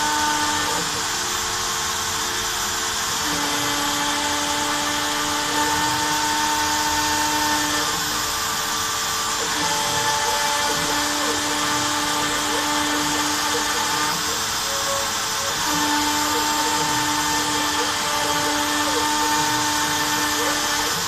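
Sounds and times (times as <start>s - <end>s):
router spindle cutting wood: 0.0s - 21.0s
stepper motors whining: 0.0s - 21.0s.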